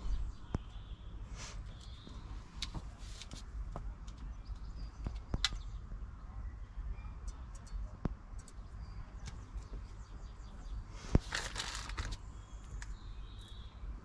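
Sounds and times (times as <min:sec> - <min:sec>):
wire and connectors clicking: 0:01.8 - 0:05.7, 0:07.2 - 0:09.9, 0:11.1 - 0:13.0.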